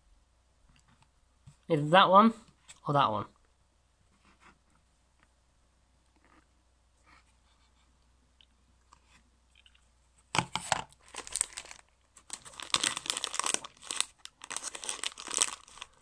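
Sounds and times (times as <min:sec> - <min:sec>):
plastic bag crinkling: 0:10.5 - 0:16.0.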